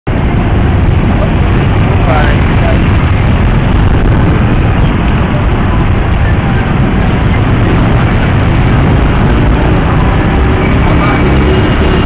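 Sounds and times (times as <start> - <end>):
city traffic: 0.0 - 12.0
motorcycle engine rumble: 0.1 - 12.0.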